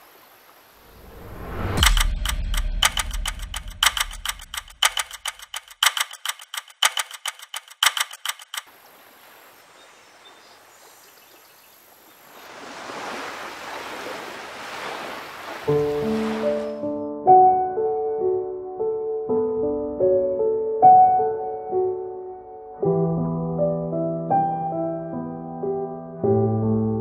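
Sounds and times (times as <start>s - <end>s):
camera shutter clicking: 1.8s - 8.6s.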